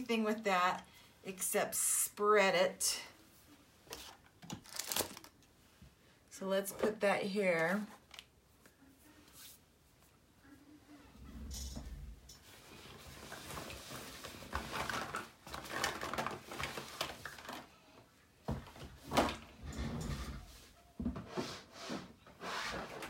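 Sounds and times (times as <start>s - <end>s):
rustling and scraping of supplies: 3.5s - 6.0s, 11.1s - 23.0s.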